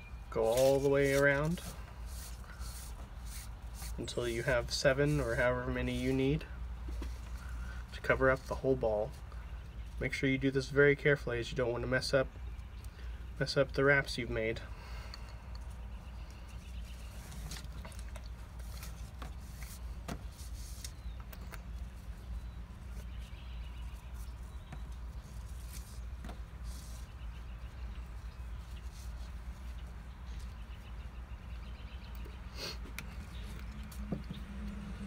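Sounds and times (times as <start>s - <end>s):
cord rustling and scraping: 0.4s - 9.3s, 16.4s - 30.8s.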